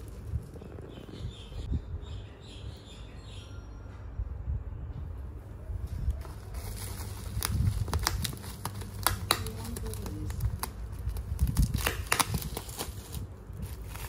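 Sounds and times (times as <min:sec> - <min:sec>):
bubble wrap crinkling: 0:00.0 - 0:00.9, 0:06.1 - 0:14.0.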